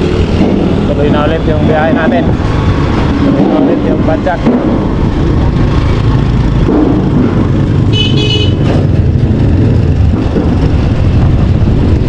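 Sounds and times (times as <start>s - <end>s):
street traffic: 0.0s - 12.0s
high-pitched horn toot: 7.9s - 8.7s
wind on microphone: 8.6s - 12.0s.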